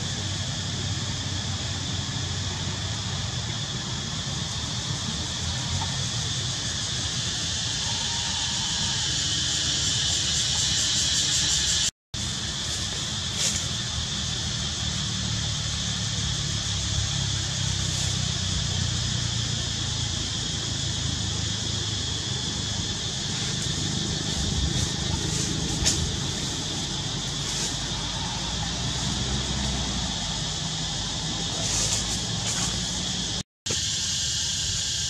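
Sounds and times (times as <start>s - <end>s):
high-pitched hiss: 0.0s - 35.0s.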